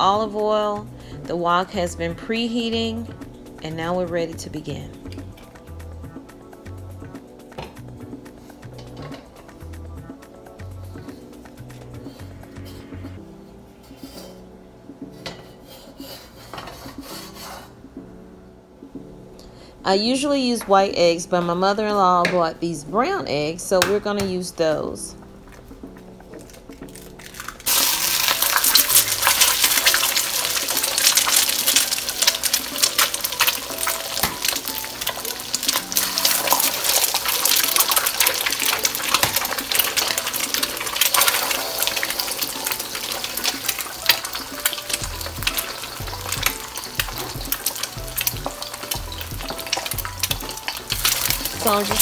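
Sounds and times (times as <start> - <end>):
eggs sizzling in hot oil: 0.0 - 13.2, 25.9 - 52.0.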